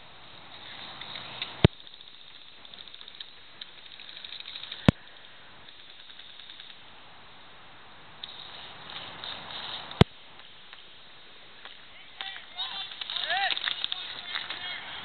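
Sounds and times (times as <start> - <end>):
faint rustling: 8.2 - 11.0.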